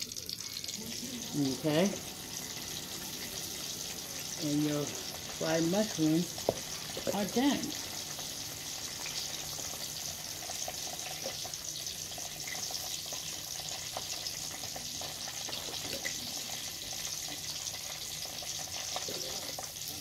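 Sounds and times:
fish deep-frying in hot oil: 0.0 - 20.0
oil crackles and pops: 0.0 - 20.0.

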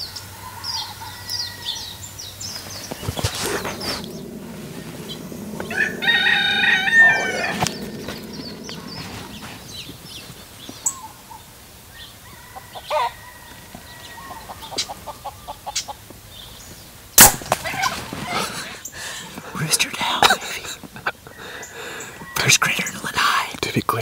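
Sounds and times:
rooster crowing: 0.1 - 2.2, 2.8 - 10.1, 12.0 - 15.6.

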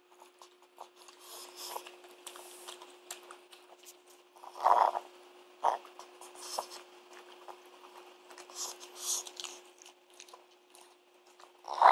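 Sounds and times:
dog snorting: 4.4 - 5.0, 11.6 - 11.9.

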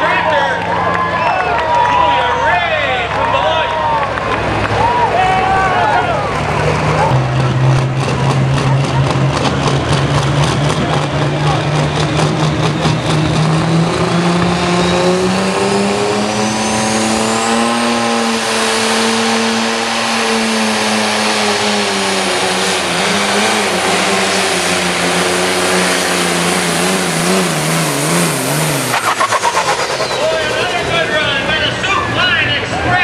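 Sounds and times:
diesel tractor engine under load: 0.0 - 33.0
high turbo whistle: 15.9 - 18.4, 27.9 - 32.1.

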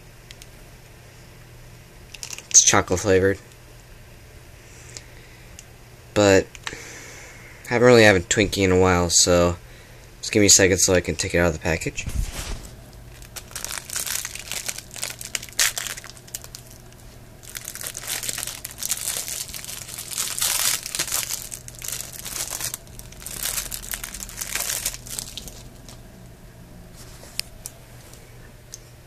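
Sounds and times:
plastic wrapper crinkling: 2.1 - 2.7, 12.0 - 26.0.

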